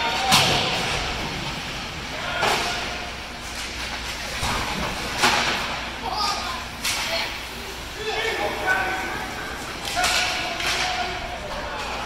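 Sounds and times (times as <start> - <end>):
sharp knocks of hockey play: 0.0 - 1.6, 2.2 - 5.9, 9.6 - 12.0
arena background din: 0.0 - 12.0.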